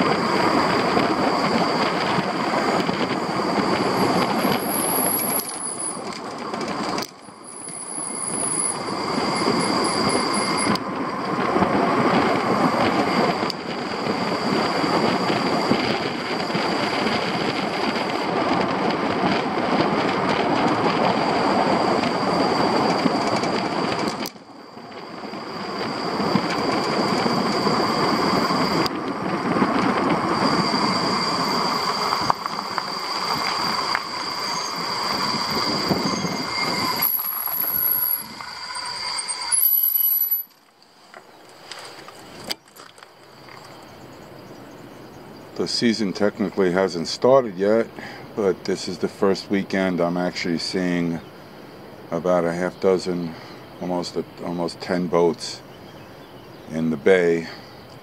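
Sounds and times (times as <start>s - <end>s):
road and wind noise: 0.0s - 58.0s
thin high squeal: 6.8s - 10.8s, 21.7s - 28.9s, 30.2s - 42.0s.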